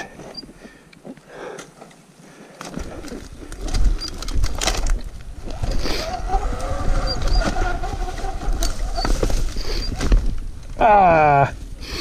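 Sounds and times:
electric motor whine: 0:05.4 - 0:09.2.

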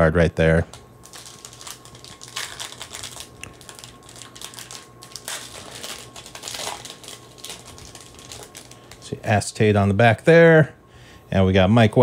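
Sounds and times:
foil wrapper crinkling: 0:00.7 - 0:09.1.

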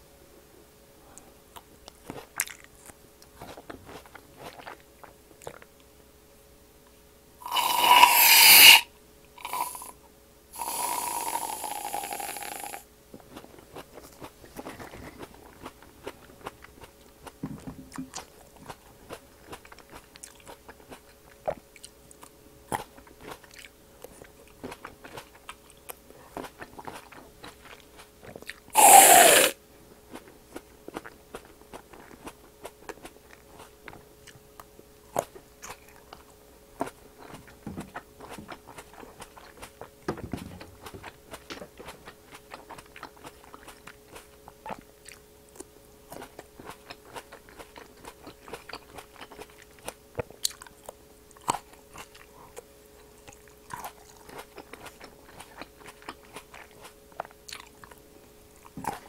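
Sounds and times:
biting and chewing grapes: 0:01.5 - 0:05.9, 0:13.2 - 0:59.0
whipped cream can spraying: 0:07.6 - 0:08.8, 0:28.8 - 0:29.6.

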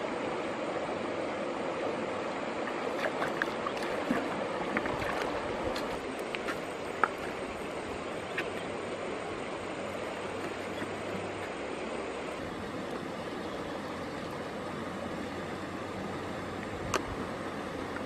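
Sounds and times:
river water rushing: 0:00.0 - 0:18.0
small water splashes: 0:02.6 - 0:14.4.

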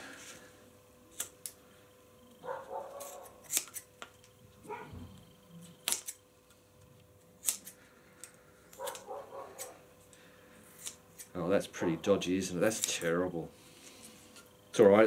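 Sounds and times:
scissors snipping foam: 0:01.1 - 0:01.6, 0:02.9 - 0:03.9, 0:05.8 - 0:06.2, 0:07.4 - 0:09.8, 0:10.7 - 0:11.4.

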